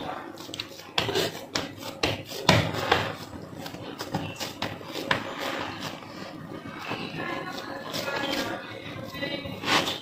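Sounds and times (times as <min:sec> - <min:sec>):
hands patting soft dough: 0:00.3 - 0:06.1.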